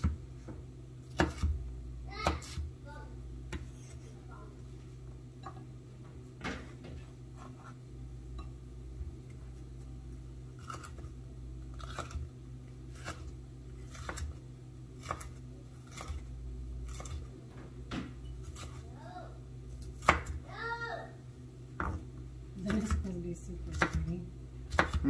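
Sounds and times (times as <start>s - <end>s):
steady low hum: 0.0s - 25.0s
knife slicing pepper: 1.1s - 1.6s, 10.6s - 11.1s, 11.7s - 12.2s, 12.9s - 14.4s, 15.0s - 17.3s, 24.7s - 25.0s.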